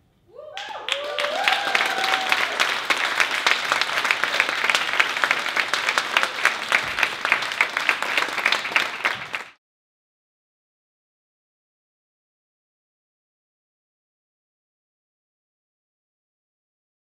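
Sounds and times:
audience applauding: 0:00.5 - 0:09.6.

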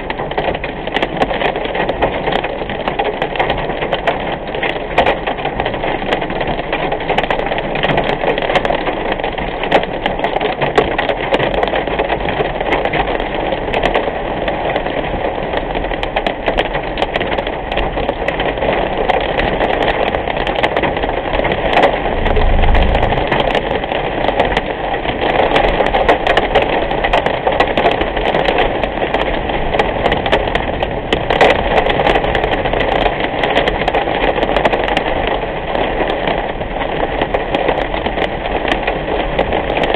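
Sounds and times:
car road and engine noise: 0:00.0 - 0:39.9
heavy rain on car windshield: 0:00.0 - 0:39.9
low rumble: 0:21.8 - 0:24.0.

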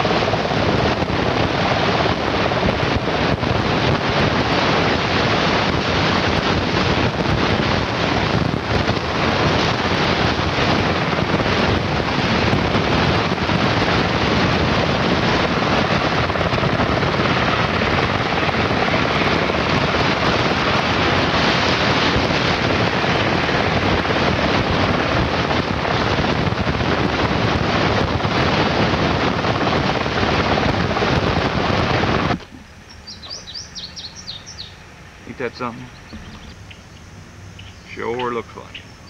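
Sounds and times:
loud steady rushing noise: 0:00.0 - 0:39.0
faint bird chirps: 0:32.4 - 0:39.0.

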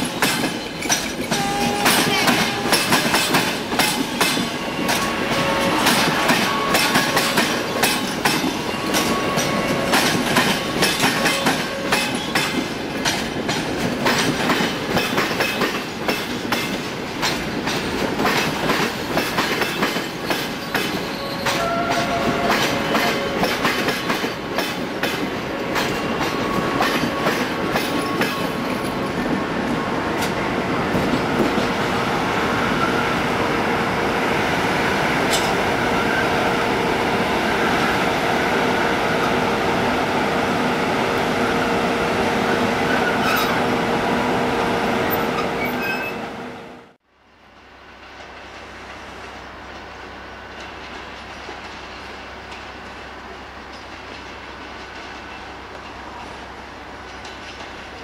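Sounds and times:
train wheels clattering over joints: 0:00.0 - 0:29.4
wheel squeals: 0:20.1 - 0:23.7, 0:42.9 - 0:43.6, 0:45.1 - 0:46.2.

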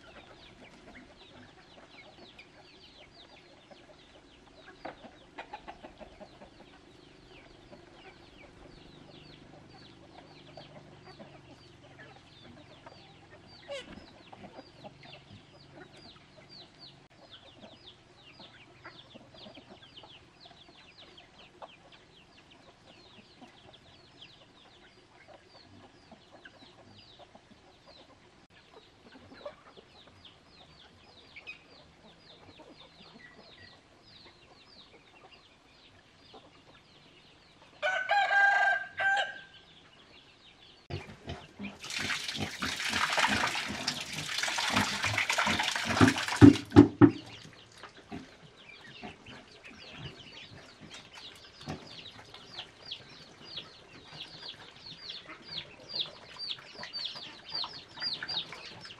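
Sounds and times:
chickens clucking: 0:00.0 - 0:58.9
sharp knocks: 0:46.0 - 0:47.4.

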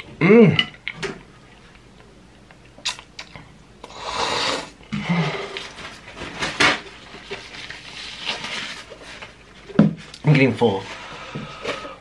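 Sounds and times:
wet chewing: 0:02.5 - 0:03.5
noodle slurping: 0:03.8 - 0:04.8.

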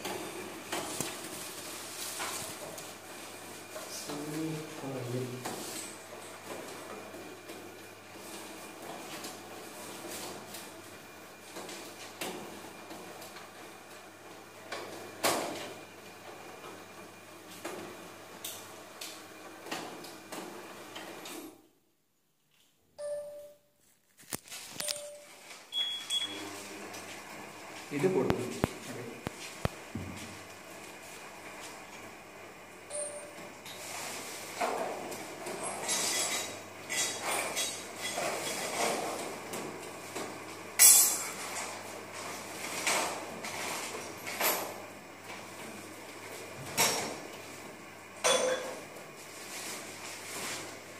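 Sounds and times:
short beeps: 0:23.0 - 0:23.7, 0:24.8 - 0:26.4, 0:32.9 - 0:33.4.

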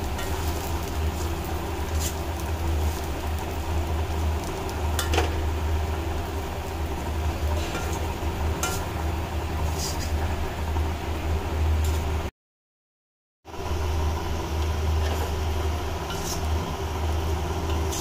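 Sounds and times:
spatula stirring dry mix: 0:00.0 - 0:03.6, 0:16.0 - 0:16.6
steady low hum: 0:13.5 - 0:18.0.

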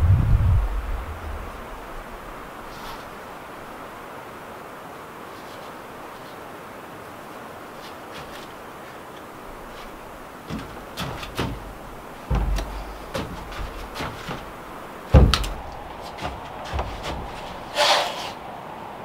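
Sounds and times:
tarp rustling: 0:05.1 - 0:18.6
wooden plank knocking on floor: 0:10.5 - 0:17.7.

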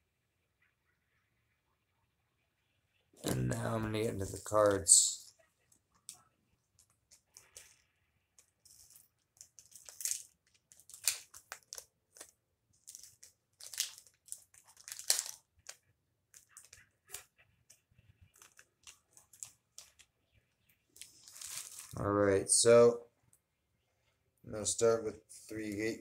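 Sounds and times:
plastic wrapper crinkling and tearing: 0:06.0 - 0:22.0.

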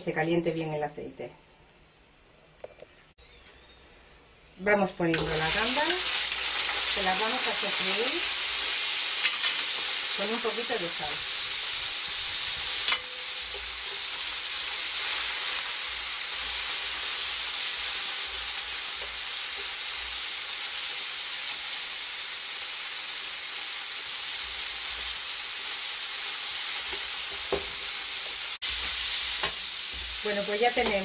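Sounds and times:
prawns sizzling in oil: 0:05.0 - 0:31.0.

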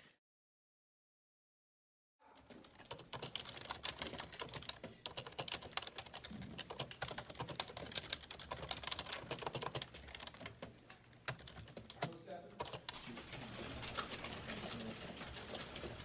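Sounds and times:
keyboards typing: 0:02.4 - 0:16.0.

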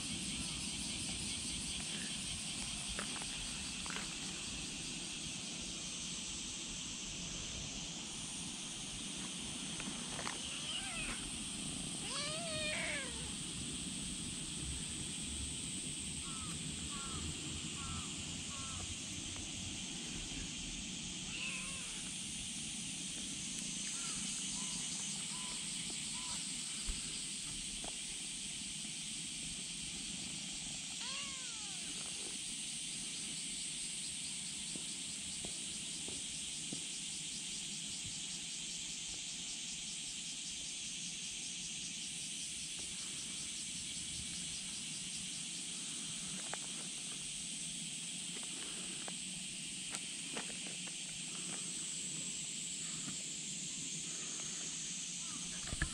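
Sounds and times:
high outdoor hiss: 0:00.0 - 0:55.9
kitten meowing: 0:10.5 - 0:11.2, 0:12.0 - 0:13.3, 0:21.3 - 0:22.0, 0:31.0 - 0:31.8.

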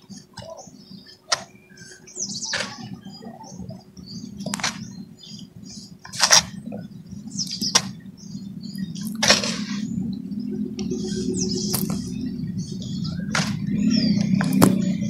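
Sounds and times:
steady low hum: 0:00.0 - 0:15.0
cement lumps crunching: 0:09.1 - 0:09.9.

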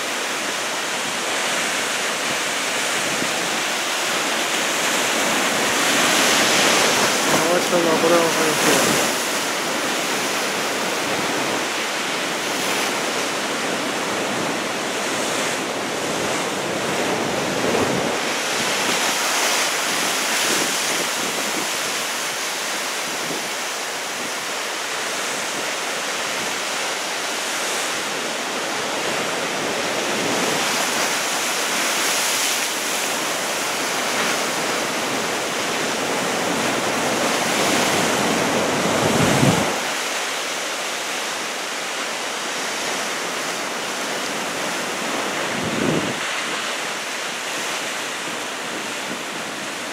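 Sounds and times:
heavy surf breaking ashore: 0:00.0 - 0:49.9
wind buffeting microphone: 0:37.6 - 0:39.9, 0:45.4 - 0:46.7.

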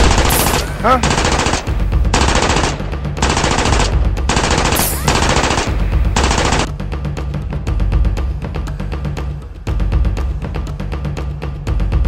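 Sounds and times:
automatic gunfire bursts: 0:00.0 - 0:06.7.

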